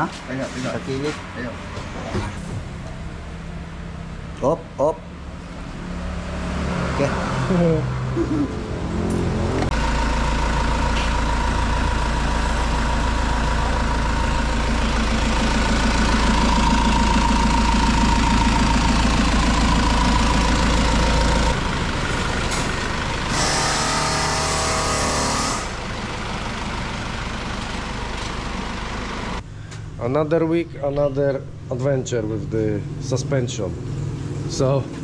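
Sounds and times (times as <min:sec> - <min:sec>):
motor running: 0:23.3 - 0:26.3.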